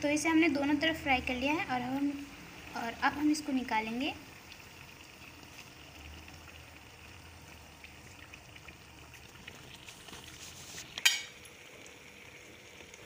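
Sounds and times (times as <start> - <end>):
food deep-frying in oil: 0.0 - 13.0
metal tongs striking pan: 11.0 - 11.4.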